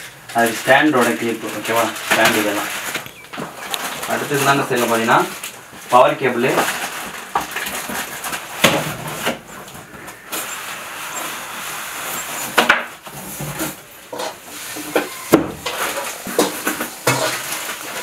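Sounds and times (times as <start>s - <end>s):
packaging rustling: 0.4s - 14.0s.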